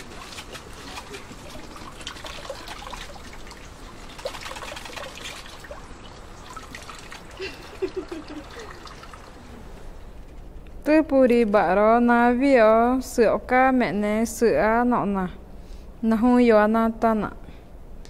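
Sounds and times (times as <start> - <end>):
small splashes: 0.0 - 9.4
liquid trickling and dripping: 0.0 - 9.5.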